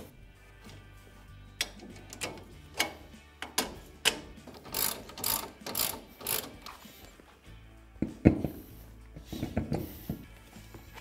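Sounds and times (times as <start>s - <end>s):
hand ratchet clicking: 1.6s - 7.0s.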